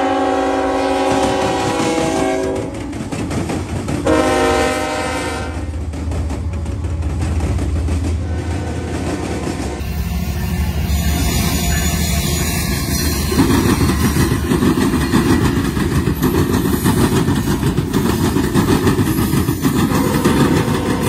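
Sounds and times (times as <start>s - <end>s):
wheels rumbling on rail: 0.0s - 21.0s
locomotive engines running: 0.9s - 21.0s.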